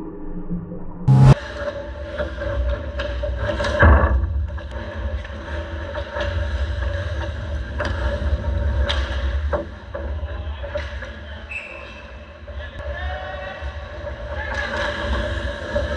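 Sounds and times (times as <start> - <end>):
steady low hum: 1.1 - 1.4.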